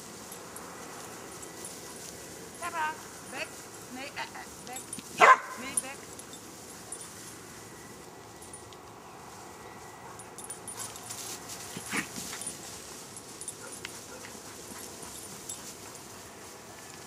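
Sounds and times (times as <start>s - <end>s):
rustling through dry grass: 0.0s - 17.0s
dog barking: 5.2s - 5.6s.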